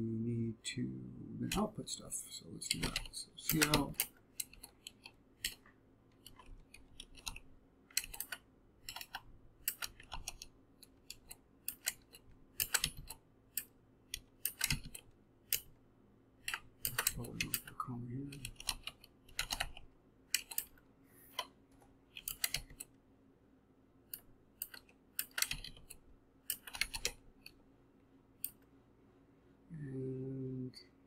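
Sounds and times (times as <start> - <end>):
typing on computer keyboard: 2.6 - 15.7, 16.4 - 21.5, 22.1 - 22.9, 24.1 - 27.5.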